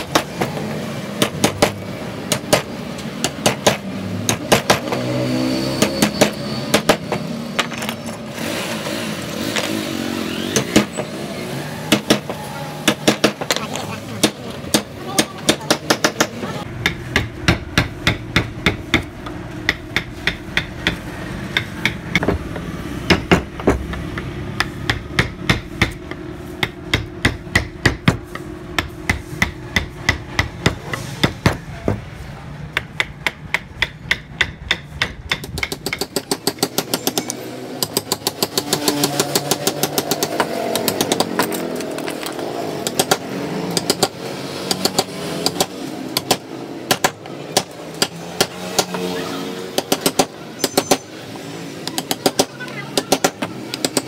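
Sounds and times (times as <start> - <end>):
mallet tapping carving gouge: 11.9 - 32.0, 32.7 - 41.4, 49.8 - 51.1.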